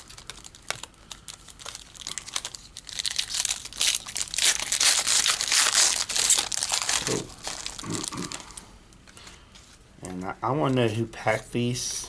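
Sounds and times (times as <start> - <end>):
wrapper tearing and crinkling: 0.0 - 8.6.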